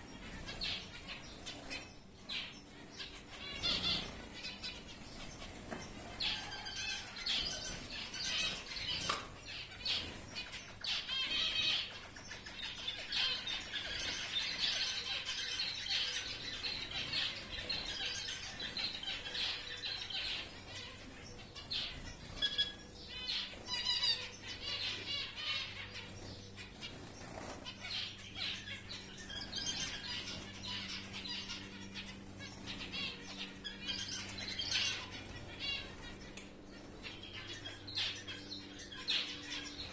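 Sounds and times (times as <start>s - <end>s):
finches chattering: 0.0s - 39.9s
wing flutters: 13.1s - 39.9s.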